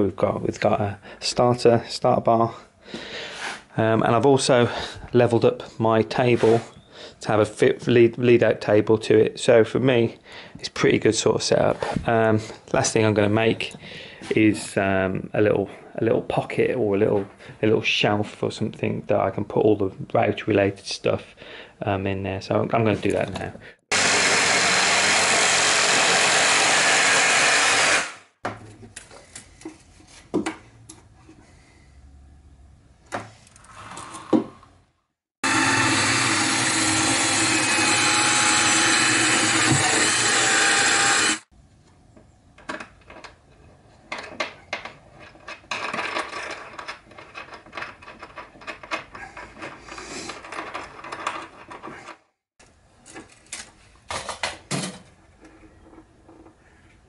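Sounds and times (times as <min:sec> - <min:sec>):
cordless drill driving into wood: 0:23.9 - 0:28.2, 0:35.4 - 0:41.4
jigsaw cutting wood: 0:23.9 - 0:28.2, 0:35.4 - 0:41.5.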